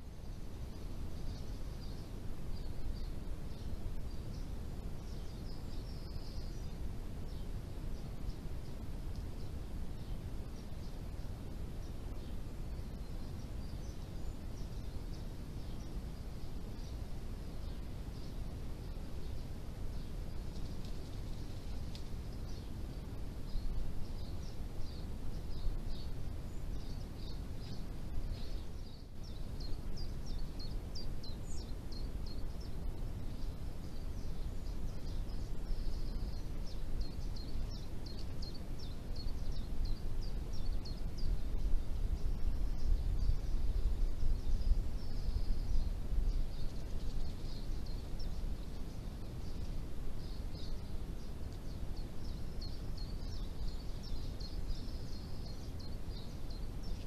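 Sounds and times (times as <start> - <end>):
wind rumble: 38.6 - 56.8.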